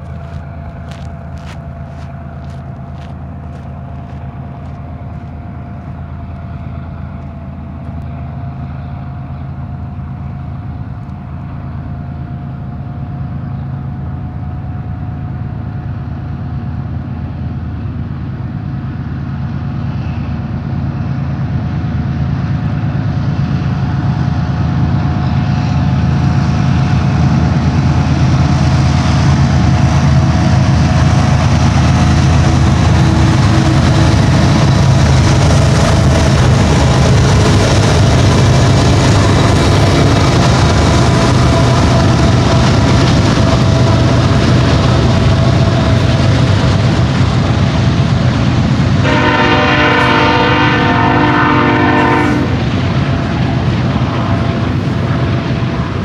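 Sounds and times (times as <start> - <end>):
diesel locomotive engine rumble: 0.0 - 56.0.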